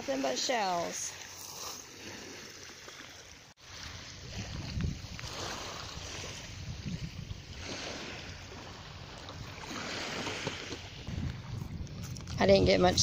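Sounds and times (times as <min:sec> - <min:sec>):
water: 0:00.0 - 0:13.0
wind buffeting microphone: 0:03.7 - 0:13.0.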